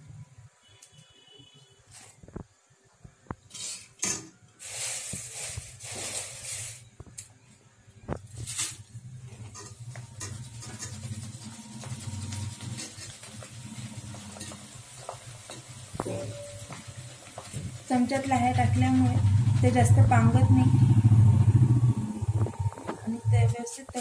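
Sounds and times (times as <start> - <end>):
oil sizzling while frying: 8.4 - 24.0
metal strainer knocking on pan: 15.5 - 16.8
low steady hum: 18.2 - 23.6.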